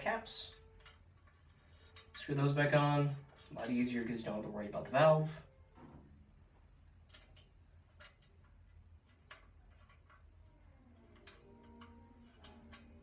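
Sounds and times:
metal valve caps clicking: 0:00.4 - 0:05.0, 0:07.0 - 0:10.3.

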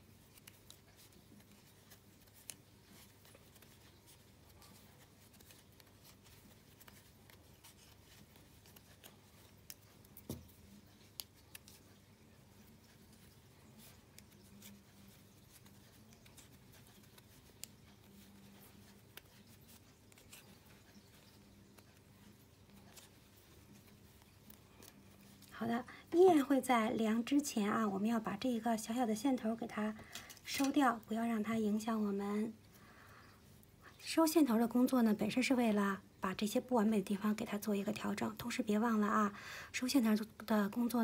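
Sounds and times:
knitting needles clicking: 0:00.0 - 0:25.6.

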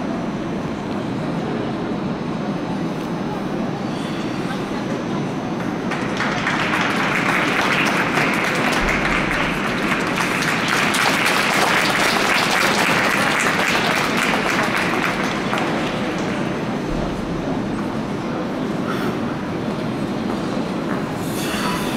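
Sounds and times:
audience applause: 0:05.6 - 0:18.5.

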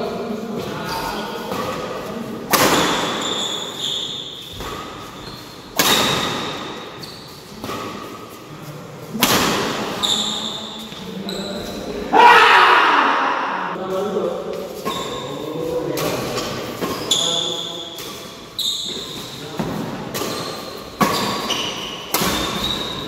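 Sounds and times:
racket hitting shuttlecock: 0:02.5 - 0:03.8, 0:04.4 - 0:08.2, 0:09.1 - 0:10.0, 0:18.9 - 0:23.0
shoes squeaking: 0:02.8 - 0:08.5, 0:10.0 - 0:12.0, 0:14.6 - 0:15.7, 0:16.3 - 0:23.0.

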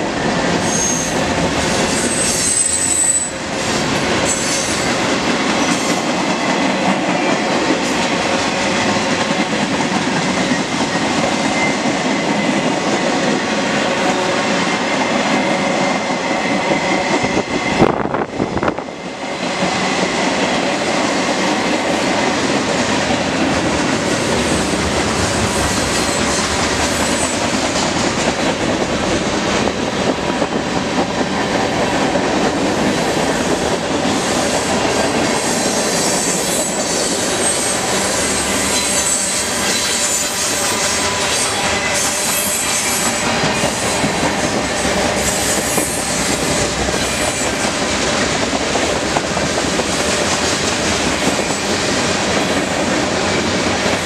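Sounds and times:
freight train wheels clattering: 0:00.0 - 0:54.0
high wheel squeal: 0:00.6 - 0:01.2, 0:01.8 - 0:03.5.

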